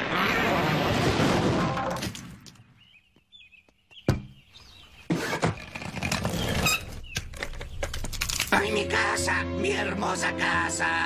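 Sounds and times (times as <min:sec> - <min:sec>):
bird-like chirps: 0:02.7 - 0:05.4.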